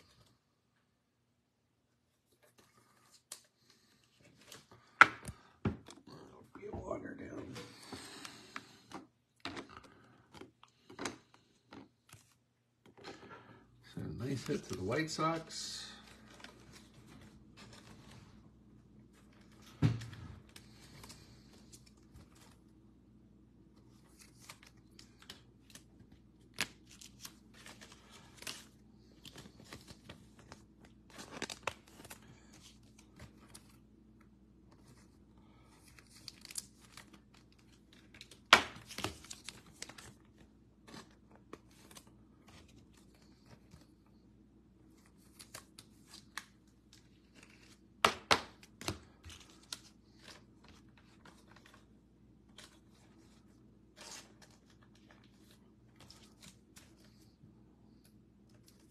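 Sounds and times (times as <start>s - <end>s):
plastic wrapping tearing and crinkling: 24.0s - 32.5s, 35.8s - 41.0s.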